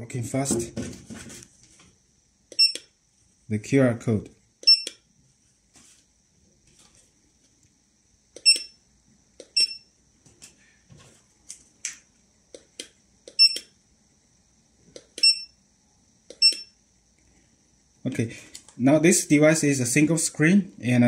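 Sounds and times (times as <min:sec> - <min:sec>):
barcode scanner beeping: 0:02.5 - 0:02.9, 0:04.6 - 0:05.0, 0:08.4 - 0:08.8, 0:09.4 - 0:09.9, 0:13.3 - 0:13.7, 0:15.2 - 0:15.5, 0:16.3 - 0:16.8
scanner clicks: 0:02.5 - 0:02.9, 0:08.3 - 0:08.8, 0:12.5 - 0:13.8, 0:16.3 - 0:16.8.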